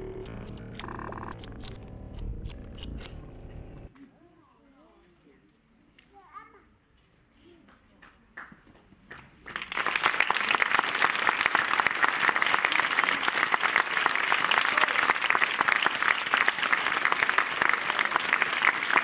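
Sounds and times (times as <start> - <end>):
audience applause: 9.4 - 19.0.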